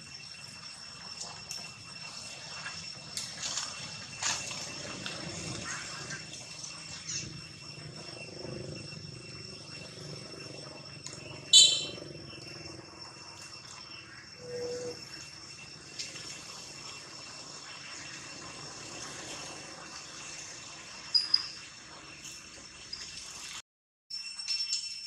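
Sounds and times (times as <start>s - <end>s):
high-pitched insect chorus: 0.0s - 23.5s
sharp chirp: 11.2s - 12.5s.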